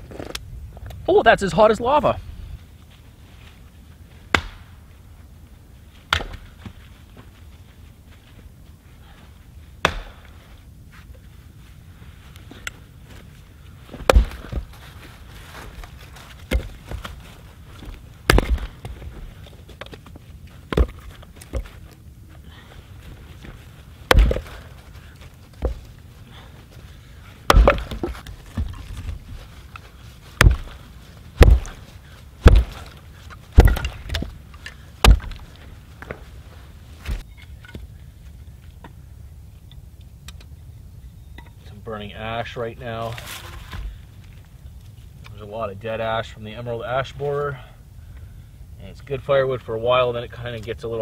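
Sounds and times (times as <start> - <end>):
axe chopping wood: 4.3 - 4.7, 6.1 - 6.6, 9.8 - 10.4, 14.0 - 14.7, 16.4 - 17.2, 18.2 - 19.0, 20.7 - 21.7, 24.0 - 24.7, 27.4 - 29.0, 30.4 - 30.8, 31.4 - 31.8, 32.4 - 34.4, 35.0 - 35.5.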